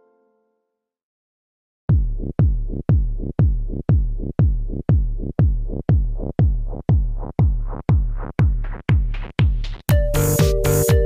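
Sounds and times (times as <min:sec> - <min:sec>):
electronic dance music: 0:06.9 - 0:11.0
bright synth: 0:10.0 - 0:11.0.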